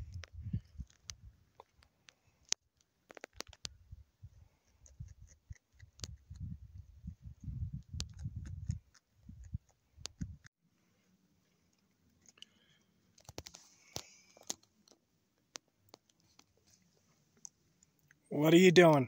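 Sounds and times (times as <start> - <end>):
wind buffeting microphone: 0.0 - 1.4, 6.0 - 10.5
sharp clicks and ticks: 4.8 - 6.5, 7.8 - 10.5.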